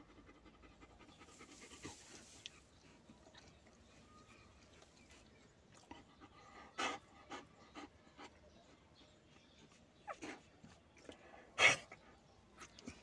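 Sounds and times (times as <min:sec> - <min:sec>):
dog panting: 0:00.0 - 0:03.6, 0:05.0 - 0:08.9.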